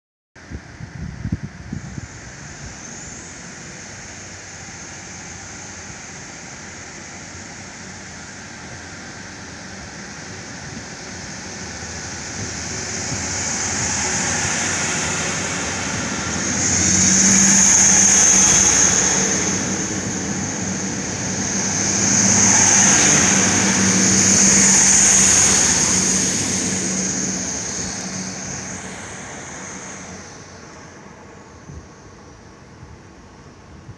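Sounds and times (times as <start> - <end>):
diesel train engines running: 0.4 - 33.9
high whine: 0.5 - 33.9
low hum: 9.8 - 33.6.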